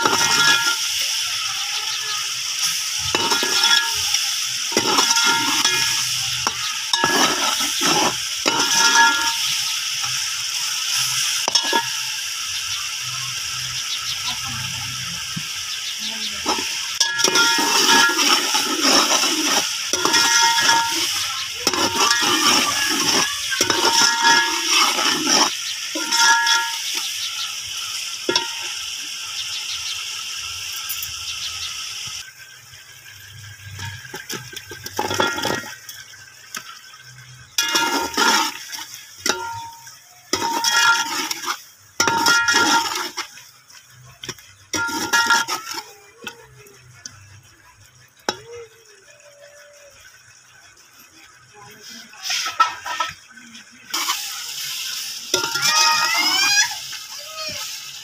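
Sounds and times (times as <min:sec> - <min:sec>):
metal spoon scraping pot: 0:00.0 - 0:01.0, 0:02.5 - 0:12.0, 0:16.4 - 0:27.2, 0:28.3 - 0:28.9, 0:33.7 - 0:36.2, 0:37.0 - 0:43.4, 0:44.3 - 0:45.9, 0:55.3 - 0:56.1
water pouring into hot pot: 0:00.0 - 0:58.0.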